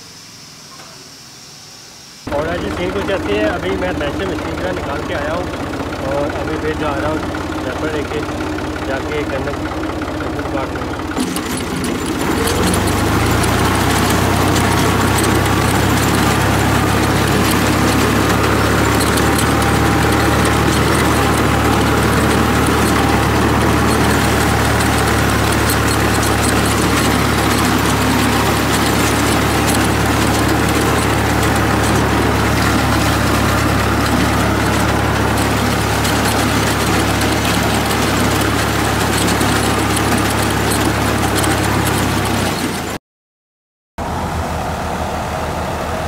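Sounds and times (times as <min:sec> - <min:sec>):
farm implement working noise: 0:02.2 - 0:43.0
tractor diesel engine running: 0:02.3 - 0:43.0, 0:44.0 - 0:46.0.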